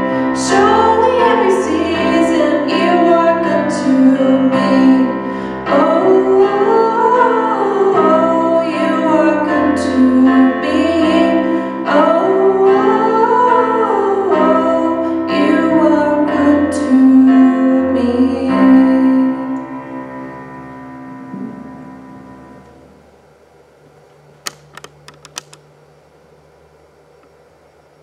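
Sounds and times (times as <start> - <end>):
woman singing: 0.0 - 20.0
digital piano: 0.0 - 23.5.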